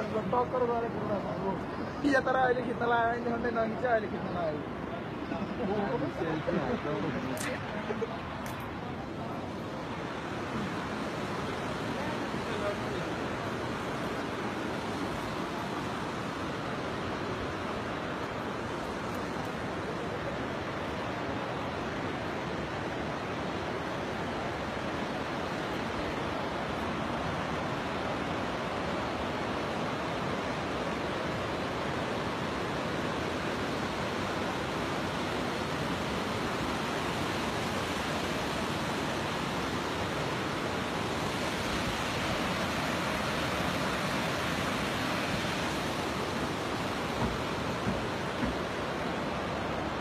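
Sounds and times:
floodwater rushing: 0.0s - 50.0s.

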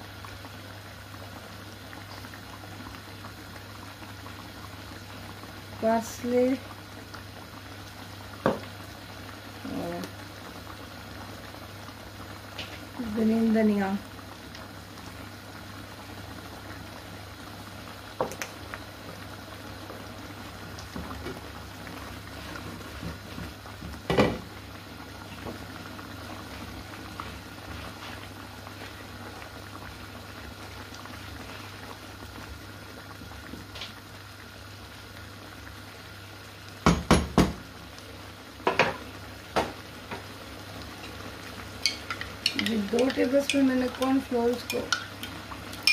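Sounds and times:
sauce bubbling in a pan: 0.0s - 45.9s
utensil knocking on a pan: 36.8s - 37.6s.

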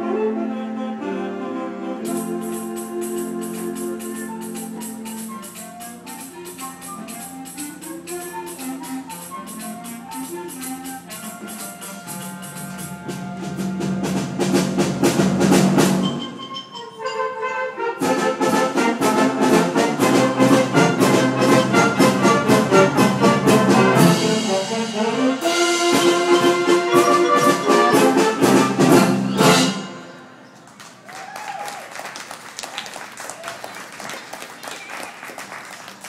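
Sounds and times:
concert band playing: 0.0s - 30.5s
steady drum beat: 11.1s - 16.2s, 18.0s - 29.8s.

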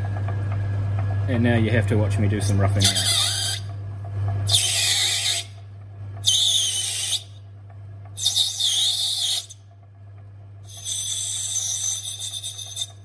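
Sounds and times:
cutting tool squealing through plastic: 2.8s - 3.7s, 4.5s - 5.6s, 6.2s - 7.4s, 8.2s - 9.6s, 10.7s - 13.0s.

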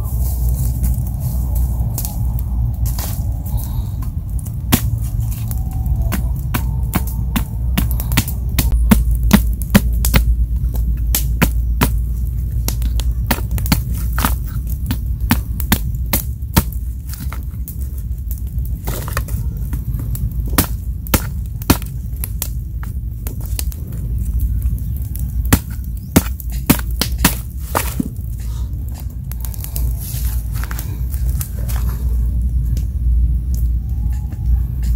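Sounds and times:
steady low rumble: 0.0s - 34.9s.

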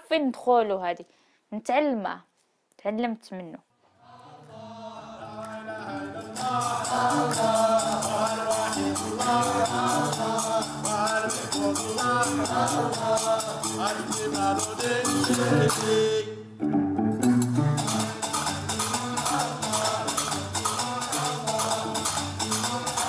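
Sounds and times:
person singing: 4.0s - 16.6s, 17.6s - 23.0s
plucked bass lute: 5.3s - 23.0s.

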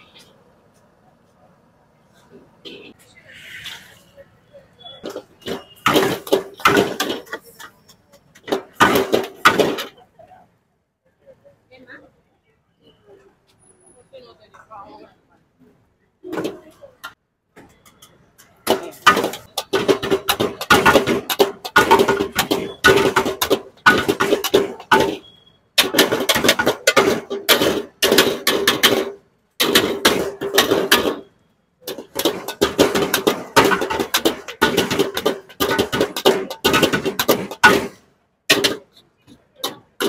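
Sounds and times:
ladle clattering against wok: 31.8s - 39.0s.

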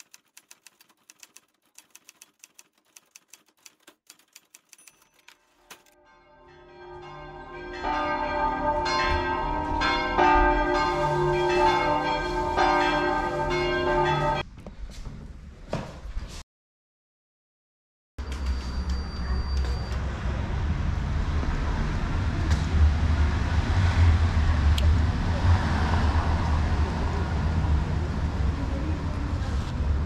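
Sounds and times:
typewriter key clicks: 0.0s - 5.9s
church bells ringing: 6.0s - 14.4s.

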